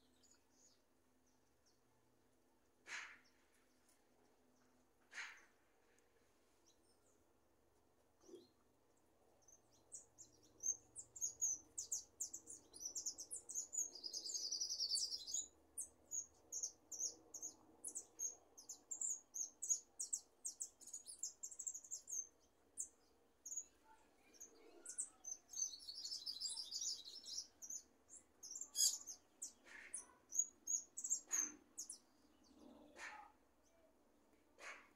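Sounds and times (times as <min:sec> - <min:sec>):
finch singing: 0:09.7 - 0:33.3.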